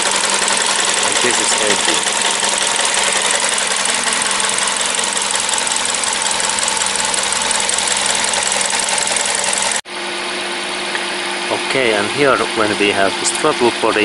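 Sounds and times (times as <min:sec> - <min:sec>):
car engine idling with ticking: 0:00.0 - 0:09.8.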